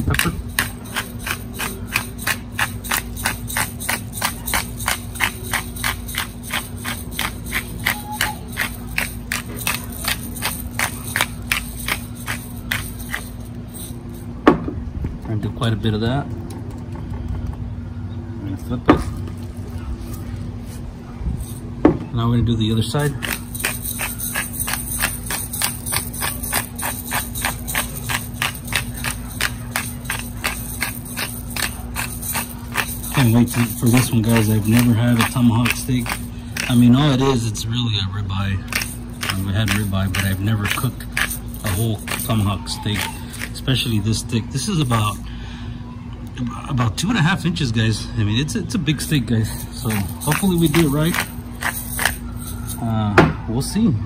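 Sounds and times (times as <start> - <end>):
pepper grinder ratcheting clicks: 0.0 - 13.5, 23.2 - 37.3, 38.7 - 44.0, 49.8 - 52.2.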